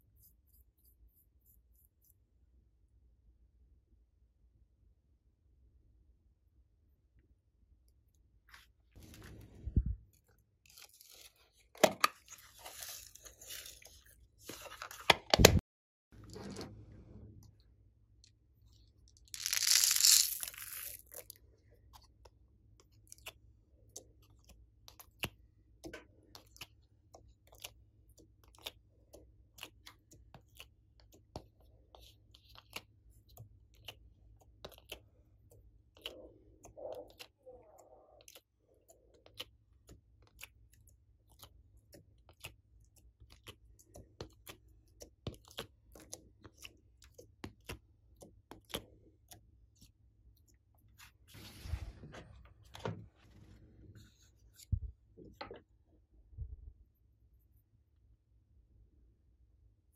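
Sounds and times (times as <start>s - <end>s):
plastic pieces clicking: 19.3s - 21.1s
beads poured onto slime: 19.4s - 21.1s.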